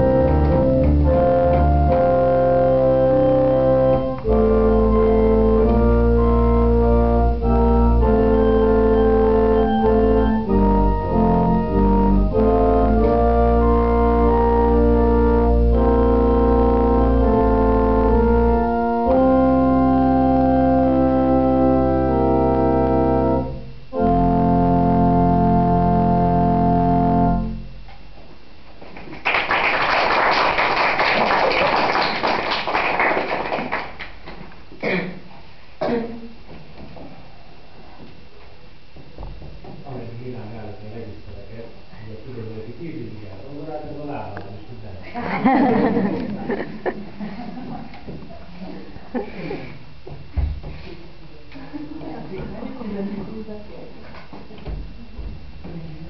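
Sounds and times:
organ playing held chords: 0:00.0 - 0:28.6
applause: 0:29.0 - 0:34.2.

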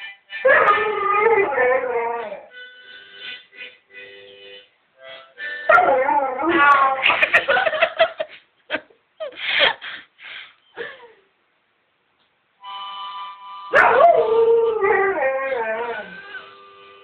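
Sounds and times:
harmonica playing a held chord: 0:02.5 - 0:05.7, 0:12.6 - 0:13.8, 0:16.0 - 0:17.0
dog howling: 0:13.8 - 0:16.4.

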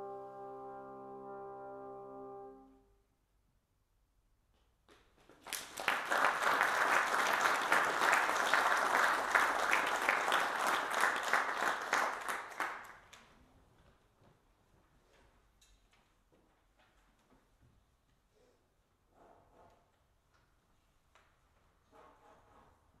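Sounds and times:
audience applauding: 0:05.3 - 0:13.2.

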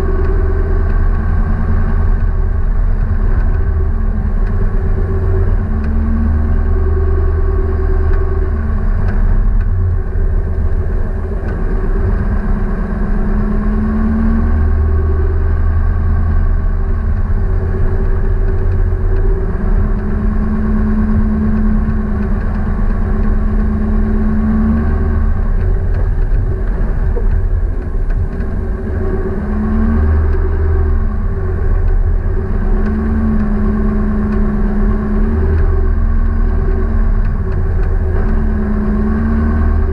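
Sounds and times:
engine revving: 0:00.0 - 0:39.9.

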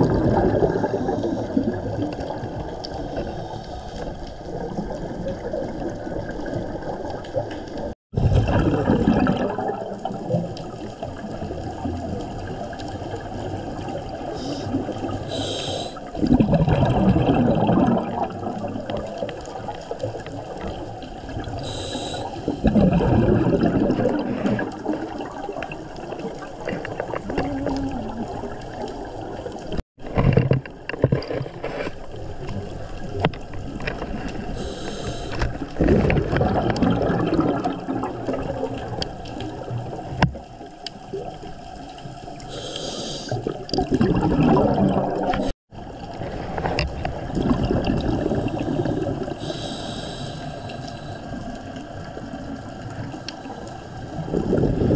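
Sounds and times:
exhaled bubbles underwater: 0:00.0 - 0:30.9, 0:32.0 - 0:54.9
steady underwater hiss: 0:00.7 - 0:04.7, 0:10.6 - 0:16.2, 0:19.2 - 0:22.7, 0:34.1 - 0:35.8, 0:38.8 - 0:43.7, 0:47.1 - 0:54.8
regulator inhalation hiss: 0:14.4 - 0:16.1, 0:21.6 - 0:22.6, 0:34.6 - 0:35.5, 0:42.1 - 0:43.4, 0:48.4 - 0:51.3.

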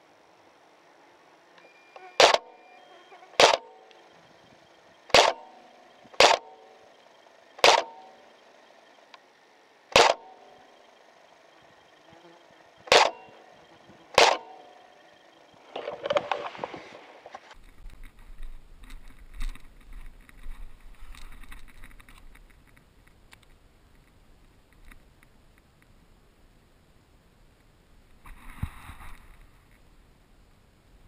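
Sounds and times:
airsoft gun shots: 0:02.2 - 0:02.6, 0:03.4 - 0:03.8, 0:05.1 - 0:06.7, 0:07.6 - 0:08.2, 0:09.9 - 0:10.5, 0:12.8 - 0:13.4, 0:14.1 - 0:14.7.

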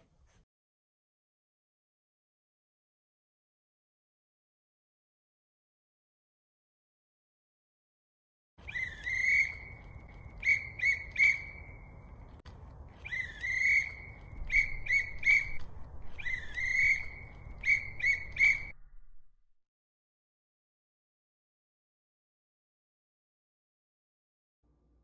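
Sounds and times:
whistle blasts: 0:08.6 - 0:11.9, 0:13.0 - 0:15.6, 0:16.2 - 0:18.7.

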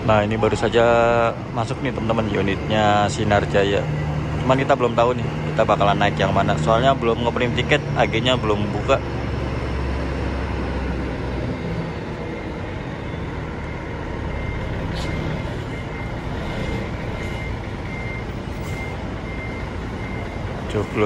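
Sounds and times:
bus engine running: 0:00.0 - 0:21.0
reversing alarm beeping: 0:00.1 - 0:21.0.

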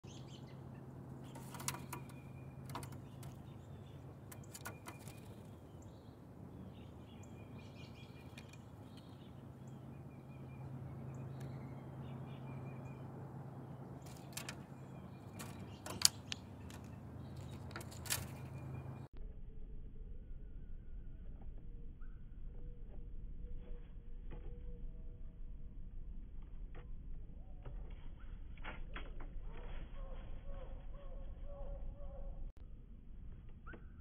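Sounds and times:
faint bird chirps: 0:00.0 - 0:19.1, 0:21.8 - 0:23.8, 0:29.8 - 0:32.5
birds tapping and pecking: 0:00.3 - 0:05.9, 0:07.7 - 0:09.9, 0:14.0 - 0:19.1.

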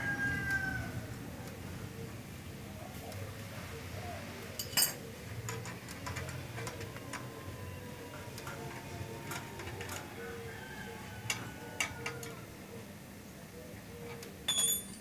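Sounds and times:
hand tools clicking on metal: 0:04.6 - 0:07.4, 0:08.2 - 0:10.2, 0:11.2 - 0:12.4.

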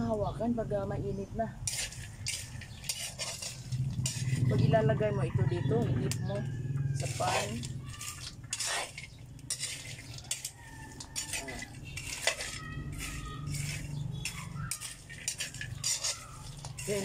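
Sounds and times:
seeds rattling in pan: 0:01.6 - 0:04.6, 0:07.0 - 0:17.0
metal spoon scraping metal pan: 0:01.6 - 0:17.0.

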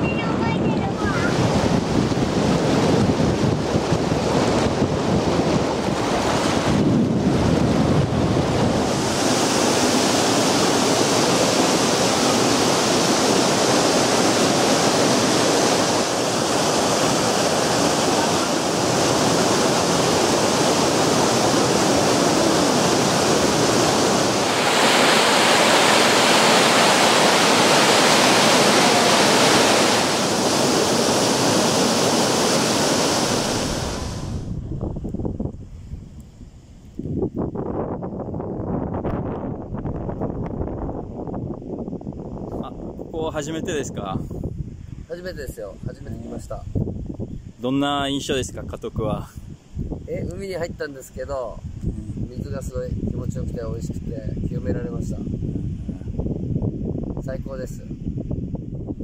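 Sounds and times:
surf and moving water: 0:00.0 - 0:37.0, 0:39.0 - 0:59.0
wind on the microphone: 0:00.0 - 0:59.0.

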